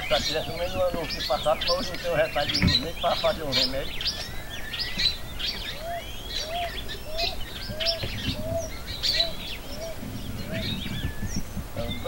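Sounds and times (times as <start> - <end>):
birds chirping and twittering: 0.0 - 12.0
dove cooing: 0.0 - 12.0.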